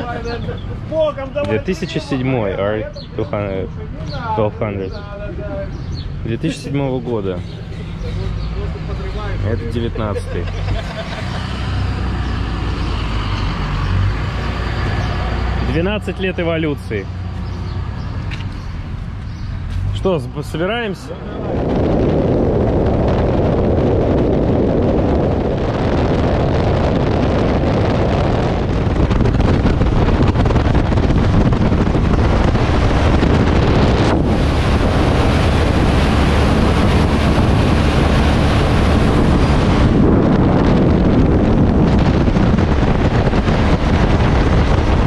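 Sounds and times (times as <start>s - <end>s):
wind buffeting microphone: 0.0s - 45.0s
motorcycle engine and tyres droning: 20.7s - 45.0s.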